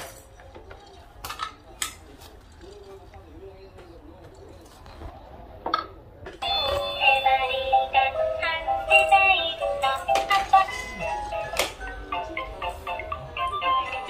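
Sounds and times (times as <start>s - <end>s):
toy synthesized melody with singing: 6.4s - 14.0s.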